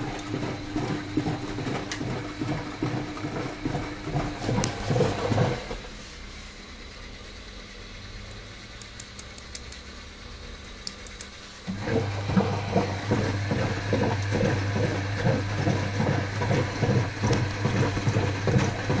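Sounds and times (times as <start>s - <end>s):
wet laundry tumbling and sloshing: 0.0s - 6.0s, 11.7s - 19.0s
washing machine motor hum: 0.0s - 19.0s.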